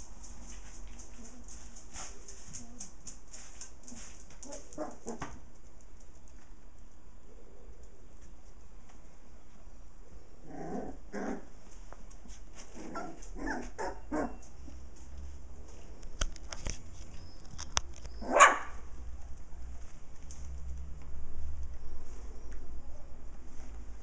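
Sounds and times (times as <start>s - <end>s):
puppies barking and yipping: 18.0s - 18.8s.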